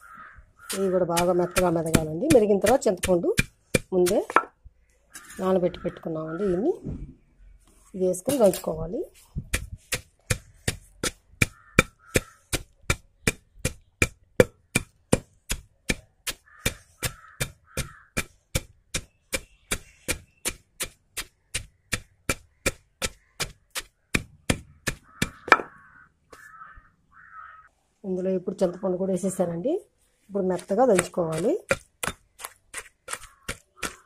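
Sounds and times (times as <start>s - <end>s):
pestle pounding in stone mortar: 0.7s - 4.5s, 8.3s - 25.8s, 30.6s - 34.0s.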